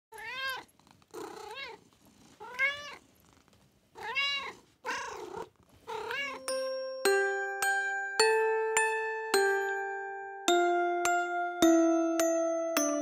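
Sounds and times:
cat meowing: 0:00.1 - 0:01.8, 0:02.4 - 0:03.0, 0:04.0 - 0:06.5.

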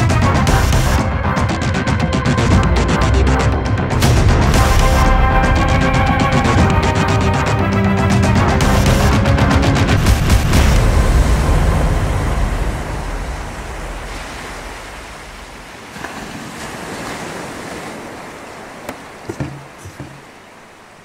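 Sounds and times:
sea surf washing onto beach: 0:08.2 - 0:21.0
soft knocks: 0:18.9 - 0:20.4.

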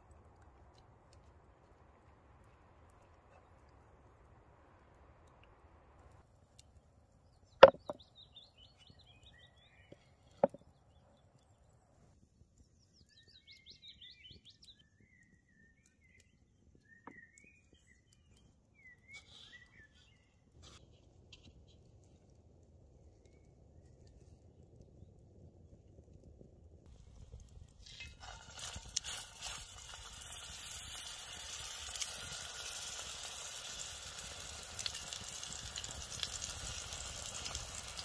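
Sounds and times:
small birds chirping: 0:07.2 - 0:12.0, 0:12.6 - 0:20.8
sharp knocks: 0:07.6 - 0:08.0.

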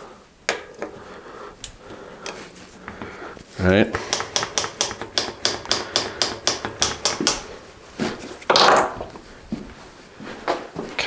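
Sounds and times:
bicycle freewheel ticking: 0:04.0 - 0:07.5.

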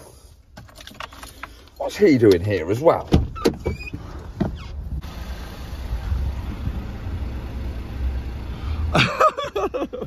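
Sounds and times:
van engine idling: 0:04.0 - 0:10.0.

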